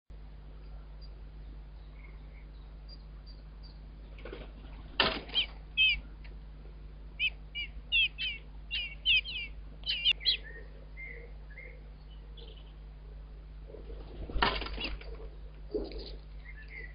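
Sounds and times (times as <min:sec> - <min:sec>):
low steady hum: 0:00.1 - 0:16.9
bird wings fluttering: 0:04.1 - 0:05.6, 0:13.8 - 0:16.4
nestlings begging squeaks: 0:05.2 - 0:06.0, 0:07.2 - 0:11.8.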